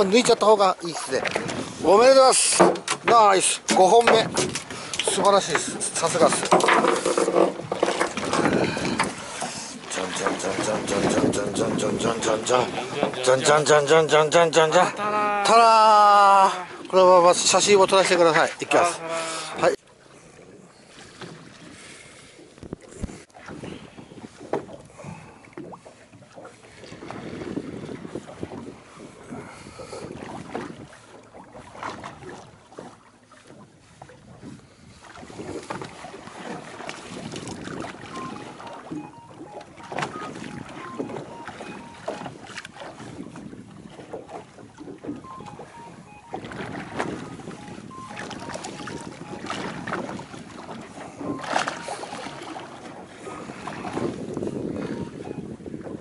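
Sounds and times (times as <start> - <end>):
water washing against hull: 0.0 - 56.0
wind on microphone: 1.2 - 2.0, 7.2 - 13.5, 22.6 - 32.8, 33.5 - 56.0
clicks and knocks: 6.2 - 9.1
faint short beeps: 38.1 - 42.4, 45.2 - 49.8, 51.2 - 52.6, 54.8 - 55.5.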